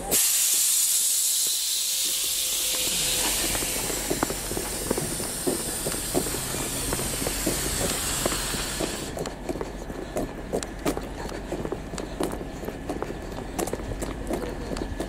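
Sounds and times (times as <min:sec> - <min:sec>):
air brakes hissing: 0:00.0 - 0:09.2
footsteps on pavement: 0:00.5 - 0:15.0.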